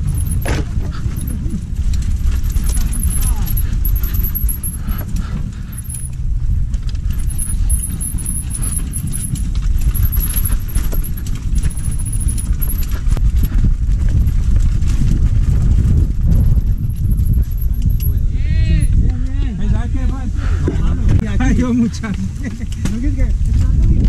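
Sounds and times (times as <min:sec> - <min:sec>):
tyres on dirt: 0:00.0 - 0:19.0
mountain bike rattling: 0:00.0 - 0:20.3, 0:21.3 - 0:24.0
wind on microphone: 0:00.0 - 0:24.0.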